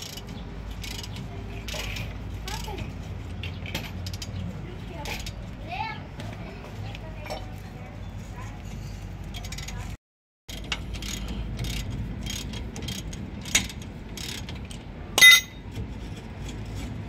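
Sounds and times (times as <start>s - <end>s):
sharp ringing metal clank: 15.2s - 15.6s.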